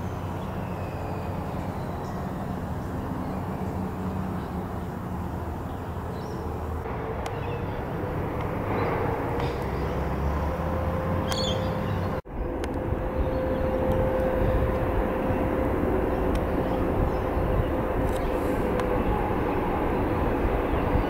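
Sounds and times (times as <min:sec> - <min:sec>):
low outdoor rumble: 0:00.0 - 0:21.0
high bird chirp: 0:11.3 - 0:12.1.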